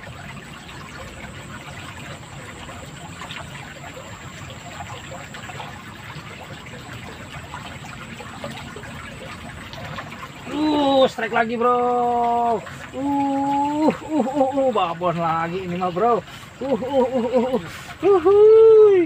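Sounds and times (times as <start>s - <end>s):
water trickling in a ditch: 0.0s - 19.0s.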